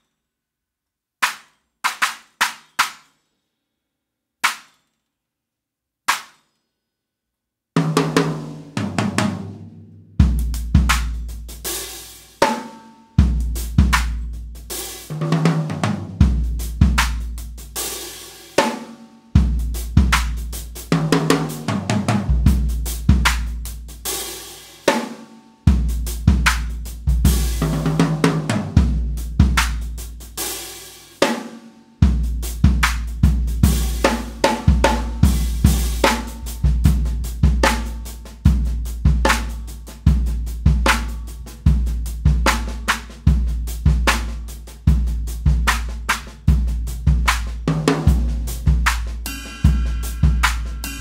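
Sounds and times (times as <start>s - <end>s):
drum kit groove: 1.2s - 3.2s, 7.8s - 51.0s
stacked cymbals cracking: 1.2s - 3.5s, 48.9s - 51.0s.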